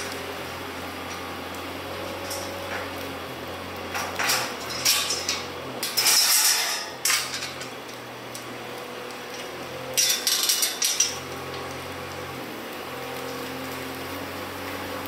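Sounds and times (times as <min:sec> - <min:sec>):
metal gate clanking and rattling: 0:02.1 - 0:03.0, 0:03.9 - 0:08.0, 0:09.3 - 0:11.2.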